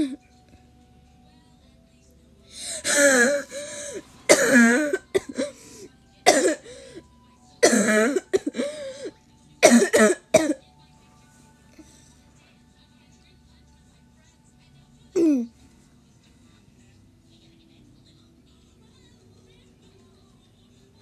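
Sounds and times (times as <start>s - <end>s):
person coughing: 2.7s - 5.6s, 6.2s - 6.8s, 7.6s - 9.0s, 9.6s - 10.6s.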